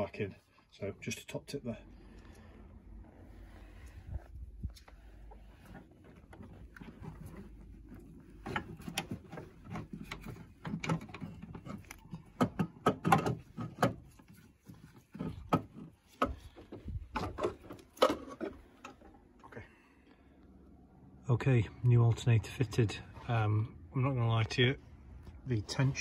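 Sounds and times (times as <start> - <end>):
metal clunks and scrapes: 2.4 - 19.3.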